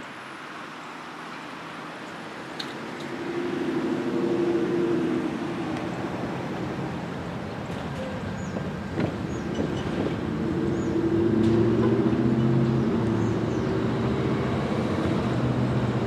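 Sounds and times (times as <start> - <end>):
train diesel engine humming: 0.0 - 16.0.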